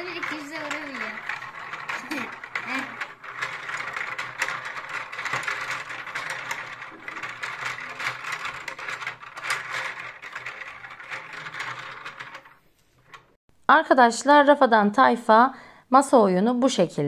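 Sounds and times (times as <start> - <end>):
foosball game plastic clicking: 0.0 - 13.4.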